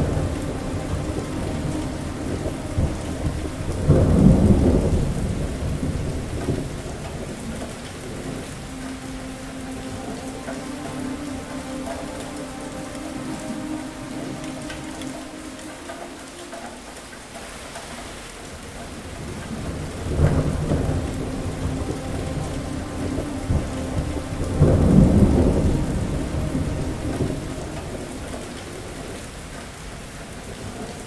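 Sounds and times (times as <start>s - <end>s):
rolling thunder: 0.0s - 9.6s, 19.2s - 29.4s
heavy rain: 0.0s - 31.0s.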